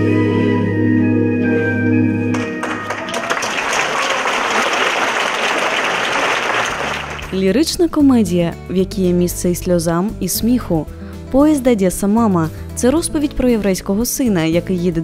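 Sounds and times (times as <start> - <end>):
audience applauding: 2.3 - 7.4.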